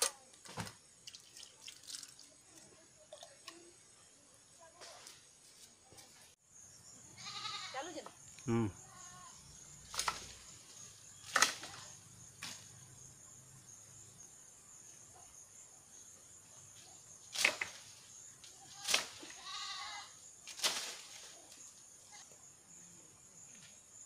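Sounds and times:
pole knocking tree branches: 9.9 - 10.4, 11.2 - 12.6, 17.3 - 17.9.

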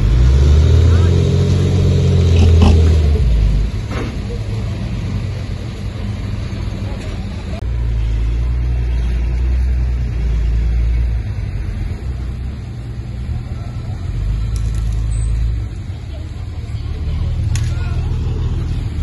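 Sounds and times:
bulldozer diesel engine drone: 0.0 - 19.0.

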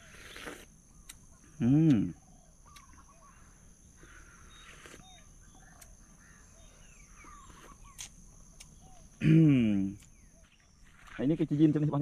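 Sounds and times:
chirping calls: 0.9 - 9.2.

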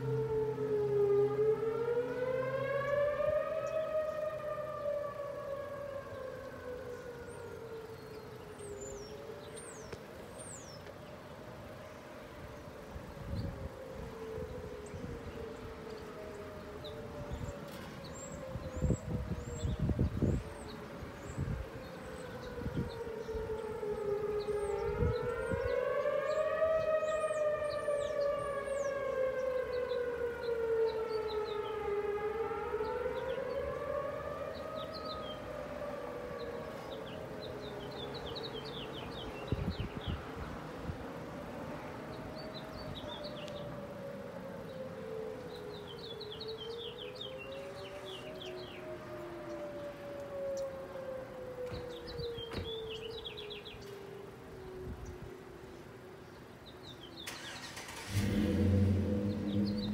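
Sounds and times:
warning siren wailing: 0.0 - 59.9
birds chirping faintly: 41.6 - 59.9.

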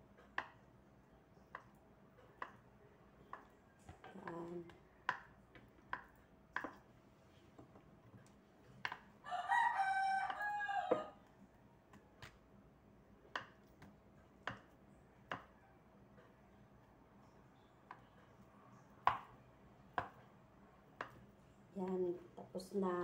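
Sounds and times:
knife tapping on cutting board: 5.1 - 5.3, 5.9 - 6.8, 14.4 - 14.7, 15.3 - 15.5
rooster crowing: 9.2 - 11.2.

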